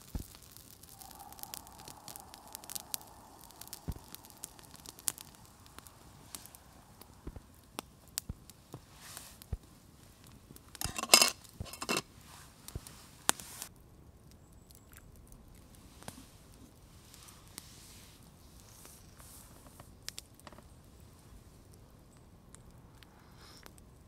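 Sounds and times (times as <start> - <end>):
campfire crackling: 0.0 - 24.0
camp cookware clinking: 10.8 - 12.1.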